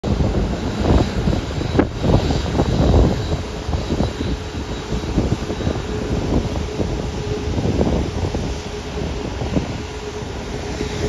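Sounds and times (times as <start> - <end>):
jet engines rumbling: 0.0 - 11.0
wind buffeting microphone: 0.0 - 11.0.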